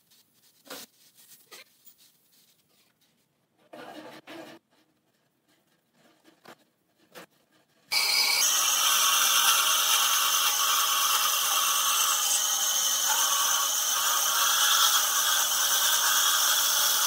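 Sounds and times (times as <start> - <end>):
bandsaw cutting wood: 7.9 - 17.0.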